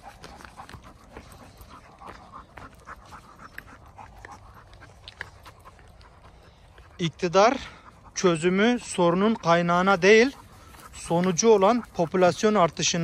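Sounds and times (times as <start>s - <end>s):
dog panting: 0.0s - 13.0s.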